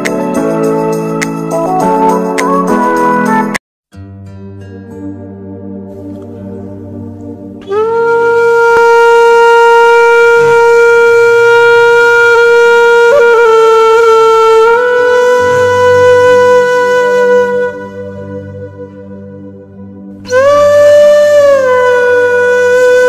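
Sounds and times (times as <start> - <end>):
soft background music: 0.0 - 23.0
wind instrument long note: 7.6 - 23.0.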